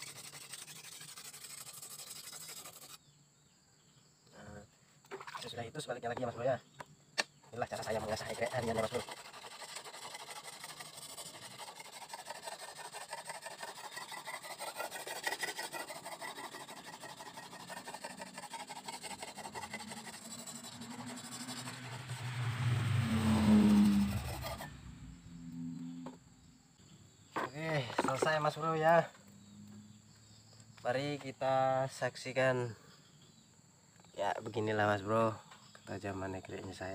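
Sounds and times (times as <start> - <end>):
whetstone scraping steel blade: 0.0 - 3.0, 8.2 - 22.3, 23.8 - 24.8.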